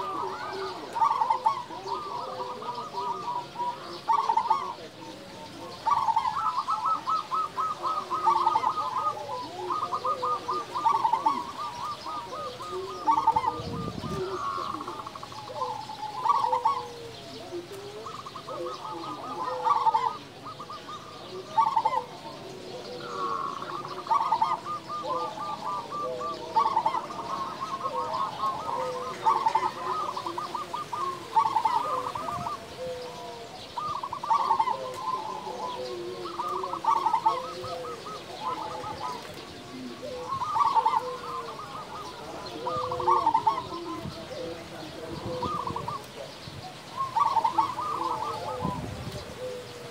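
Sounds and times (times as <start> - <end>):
dove cooing: 0.0 - 49.9
lower soft coo notes: 0.0 - 49.9.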